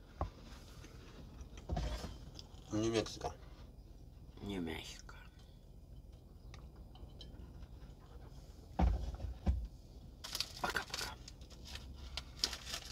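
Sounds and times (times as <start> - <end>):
crisp rustling and clicking: 10.2 - 12.9.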